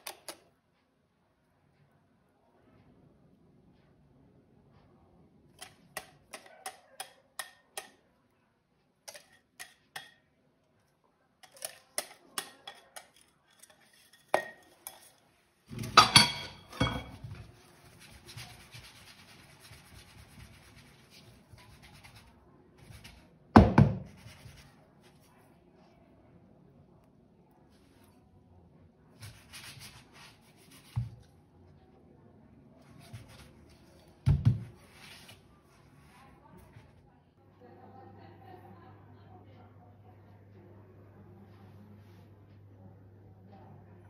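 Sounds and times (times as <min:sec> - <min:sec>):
utensils tapping dishes: 0:09.1 - 0:10.3, 0:11.4 - 0:17.4
loud clatter of cookware: 0:11.4 - 0:17.4.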